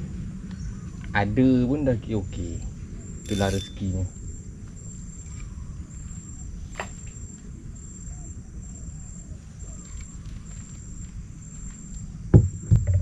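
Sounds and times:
insect trilling: 0:02.1 - 0:12.2.

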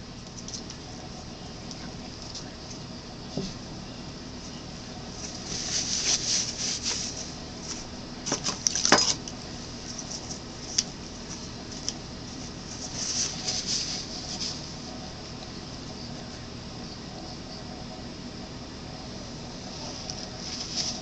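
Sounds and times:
scratchy handling rustles: 0:05.0 - 0:09.1, 0:09.8 - 0:15.0, 0:19.6 - 0:21.0.

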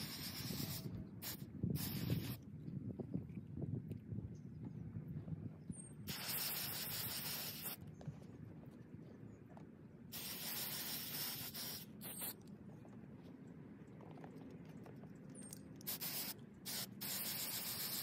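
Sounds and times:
aerosol can spraying: 0:00.0 - 0:02.4, 0:06.1 - 0:07.8, 0:10.1 - 0:12.4, 0:15.9 - 0:18.0.

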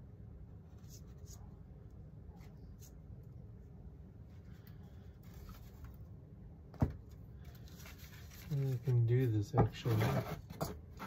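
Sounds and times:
low steady hum: 0:00.0 - 0:11.0
scratching and rustling of parts: 0:07.0 - 0:11.0.

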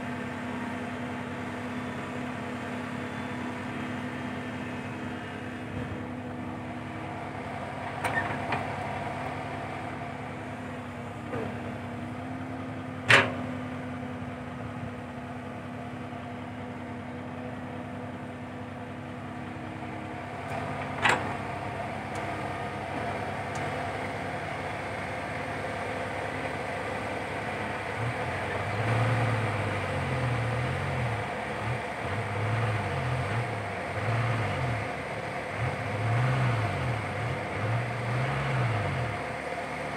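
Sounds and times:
excavator diesel engine running: 0:00.0 - 0:39.9.

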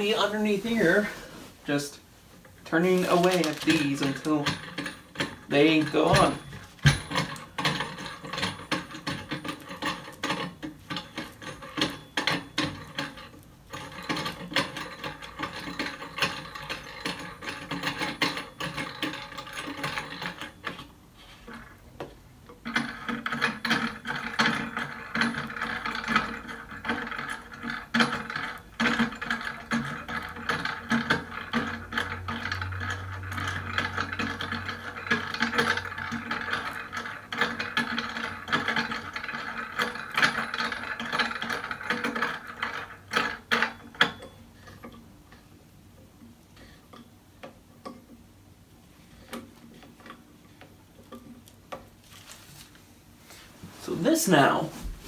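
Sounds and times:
screw clicking and grinding: 0:03.1 - 0:21.7, 0:22.4 - 0:45.1.

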